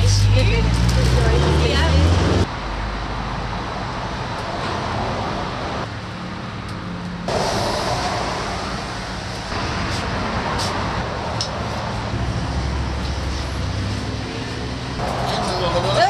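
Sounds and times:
road traffic passing: 0.0s - 16.0s.

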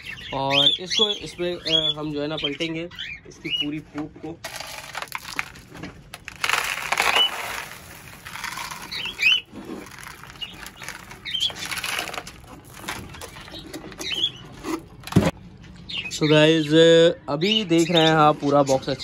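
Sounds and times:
nest litter rustling and scraping: 4.5s - 14.6s.

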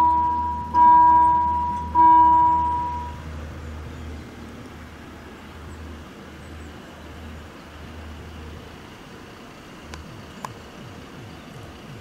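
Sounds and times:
level crossing warning bell: 0.0s - 3.2s
low steady rumble: 0.0s - 12.0s.

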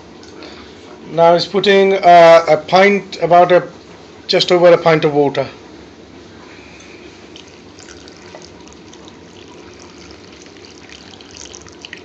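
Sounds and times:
water pouring into metal pan: 7.4s - 12.0s.

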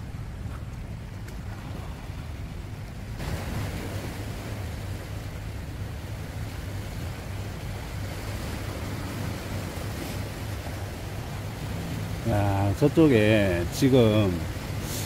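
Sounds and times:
wind rumbling on microphone: 0.0s - 13.6s
sea washing against rocks: 0.0s - 15.0s.

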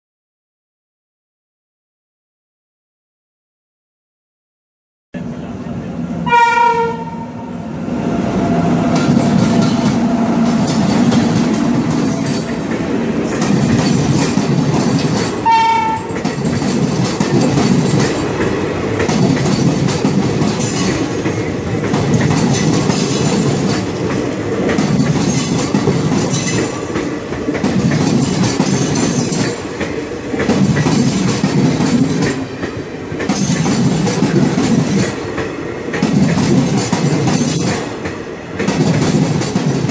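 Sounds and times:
train horn: 6.2s - 7.4s, 15.4s - 16.1s
train wheels clattering over rails: 8.7s - 39.9s.

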